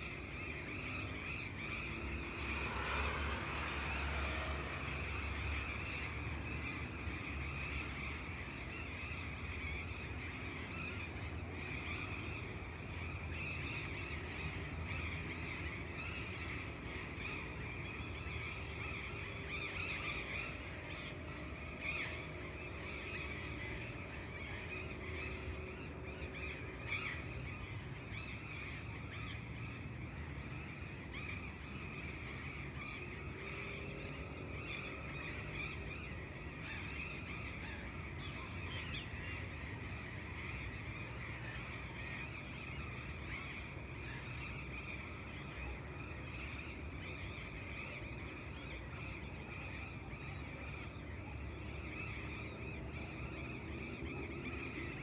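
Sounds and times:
birds calling: 0.0s - 55.0s
distant traffic rumble: 0.0s - 55.0s.

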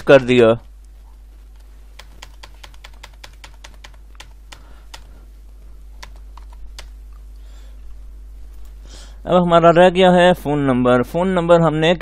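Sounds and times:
low electrical hum: 0.0s - 12.0s
keyboard keys clicking: 2.0s - 5.1s, 6.0s - 7.0s.

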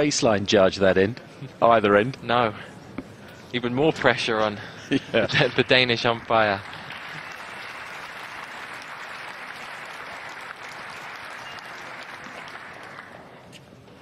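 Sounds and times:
crowd applauding: 5.2s - 13.4s.

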